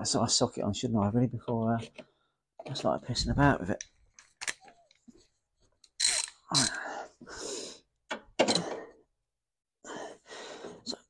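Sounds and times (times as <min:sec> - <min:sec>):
socket ratchet clicking: 0:06.0 - 0:06.7.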